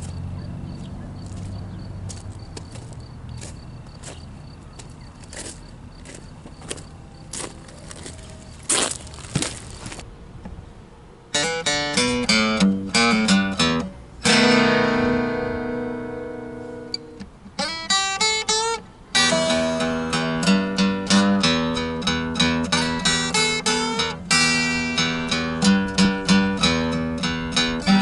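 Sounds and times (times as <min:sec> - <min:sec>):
acoustic guitar playing blues: 0:11.3 - 0:28.0.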